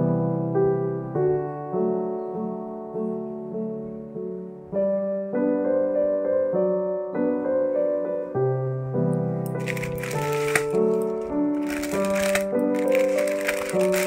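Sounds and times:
gentle piano music: 0.0s - 14.0s
plastic mailer bag crinkling: 9.5s - 14.0s.

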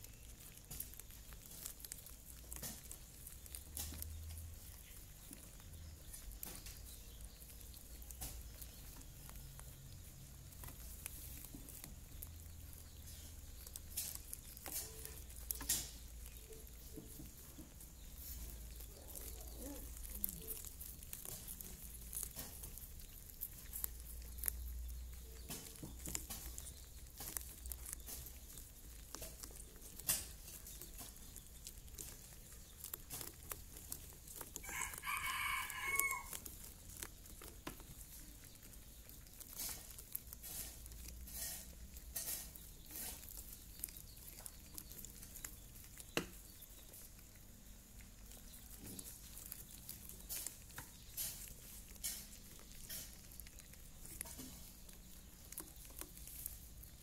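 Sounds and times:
rabbits gnawing corn: 0.0s - 57.0s.

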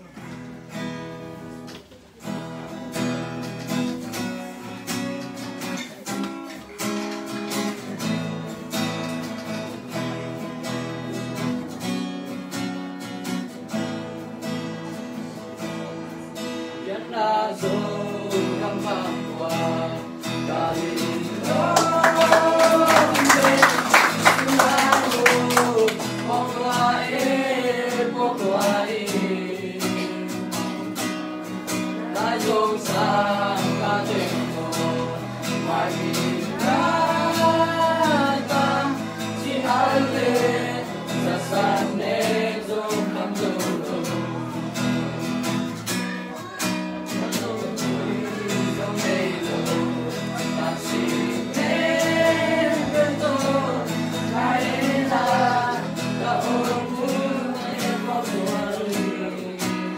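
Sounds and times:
acoustic guitar strumming: 0.0s - 59.9s
group of teenagers singing: 15.2s - 44.9s, 47.1s - 59.9s.

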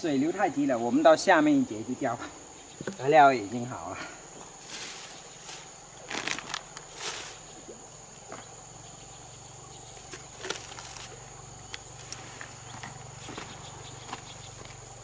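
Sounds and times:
insects droning: 0.0s - 15.0s
fishing gear rustling and clattering: 4.5s - 7.6s, 10.0s - 11.2s.

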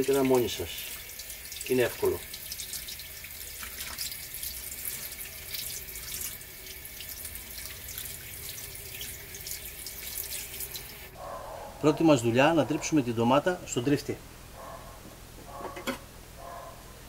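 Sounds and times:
tap water running into steel sink: 0.0s - 11.1s
water splashing over hands: 3.4s - 4.2s.

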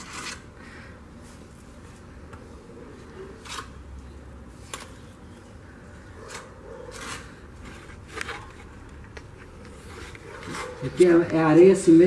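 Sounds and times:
trowel scraping wet mortar: 0.0s - 0.5s.

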